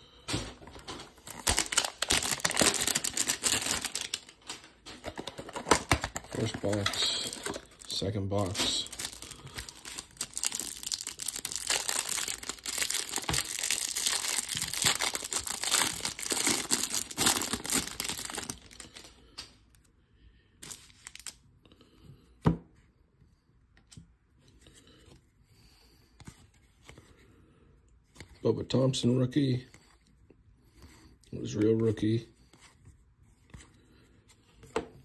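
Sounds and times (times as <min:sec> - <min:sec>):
handling of cards: 0:00.1 - 0:19.6, 0:20.6 - 0:21.4
plastic shrink-wrap crinkling and tearing: 0:00.8 - 0:19.2, 0:20.6 - 0:21.4.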